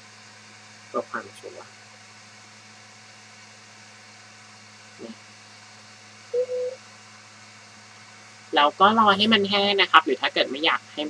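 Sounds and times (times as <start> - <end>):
low electrical hum: 0.0 - 11.0
brief two-part tone: 6.3 - 6.8.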